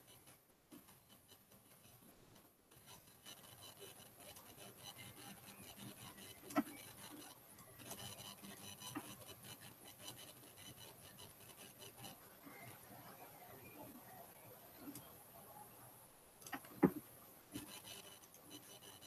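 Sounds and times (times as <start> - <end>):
scratchy stylus rubbing: 2.8 - 14.2, 16.5 - 19.0.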